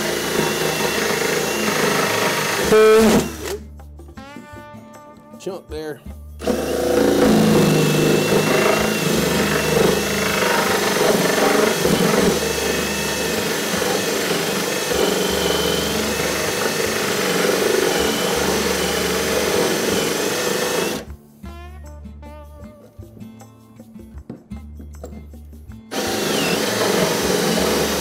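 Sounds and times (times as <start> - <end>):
power drill boring into wood: 0.0 - 3.6, 6.4 - 21.1, 25.9 - 28.0.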